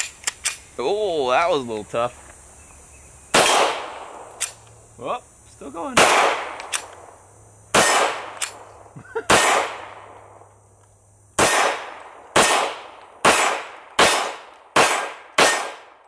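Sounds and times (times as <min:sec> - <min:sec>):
pistol shots with echo: 0:03.3 - 0:04.5, 0:05.9 - 0:06.9, 0:07.7 - 0:08.6, 0:09.3 - 0:10.2, 0:11.4 - 0:16.0.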